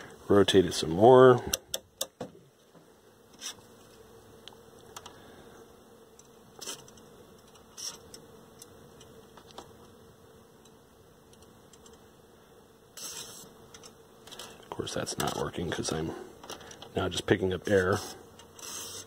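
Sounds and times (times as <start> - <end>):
faint steady hum: 0.0 - 19.0
aerosol spray hissing: 13.0 - 13.5, 17.9 - 19.0.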